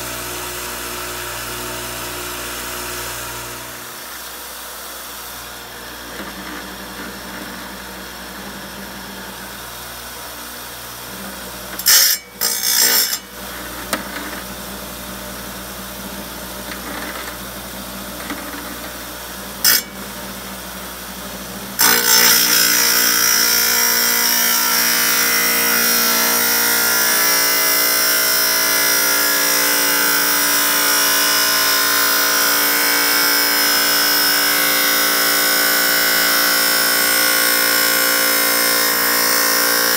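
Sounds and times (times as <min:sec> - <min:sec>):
tile saw motor hum: 0:00.0 - 0:39.9
saw blade grinding stone: 0:11.7 - 0:14.5, 0:19.6 - 0:20.2, 0:21.8 - 0:39.9.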